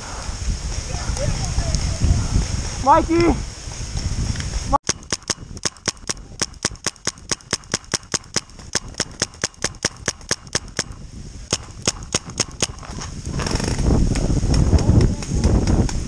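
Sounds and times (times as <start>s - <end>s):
paintball marker firing: 4.9s - 12.9s.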